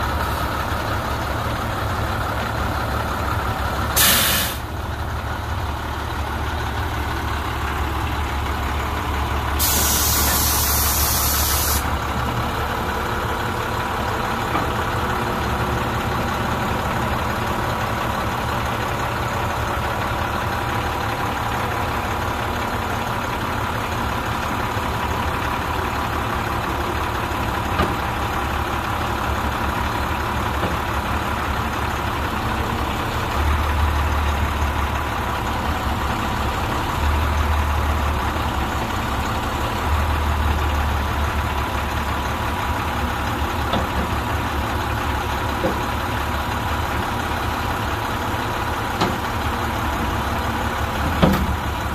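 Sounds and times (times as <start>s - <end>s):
diesel truck engine idling: 0.0s - 51.9s
compressed air hissing: 4.0s - 4.7s, 9.6s - 11.9s.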